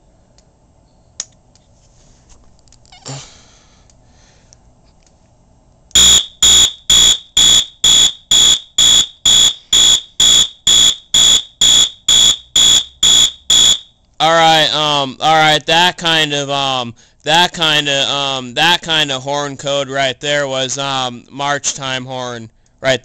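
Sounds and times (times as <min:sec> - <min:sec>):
pulsing fire alarm horn: 0:06.0 - 0:13.9.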